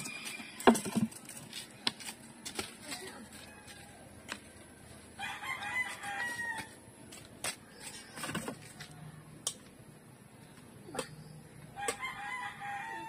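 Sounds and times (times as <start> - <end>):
rooster crowing: 5.2 - 6.8, 11.7 - 13.0.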